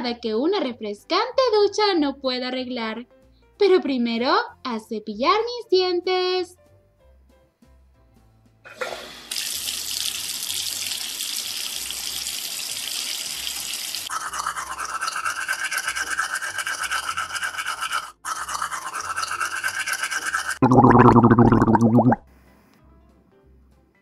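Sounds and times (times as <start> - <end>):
toothbrush scrubbing: 14.1 - 22.1.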